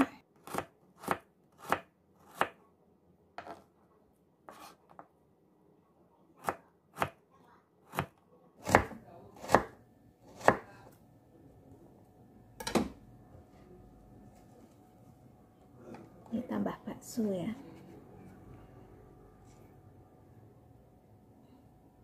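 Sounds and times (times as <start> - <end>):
knife chopping on cutting board: 0.4 - 2.6, 7.9 - 9.7, 10.3 - 10.7.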